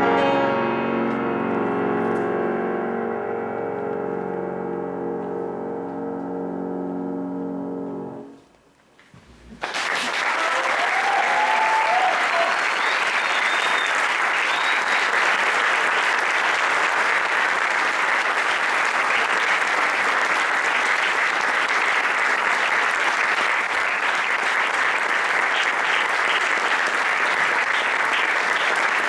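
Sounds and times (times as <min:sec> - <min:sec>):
audience applauding: 0:09.5 - 0:29.0.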